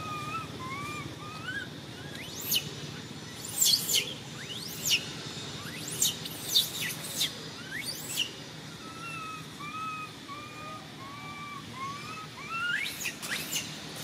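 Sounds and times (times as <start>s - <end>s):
birds chirping: 0.0s - 14.0s
bird whistled notes: 3.4s - 13.8s.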